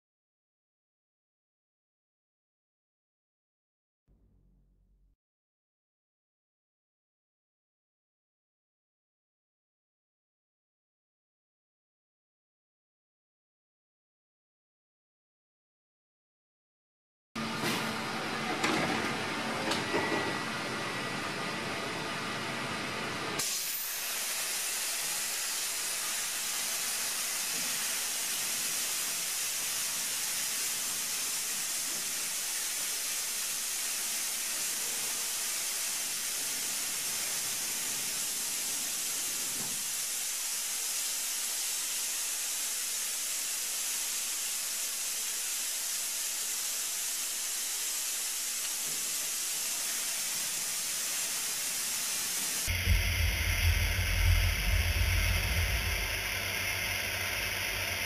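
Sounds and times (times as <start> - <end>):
mechanical hum: 17.4 - 42.6, 49.3 - 58.0
steady hiss: 23.4 - 58.0.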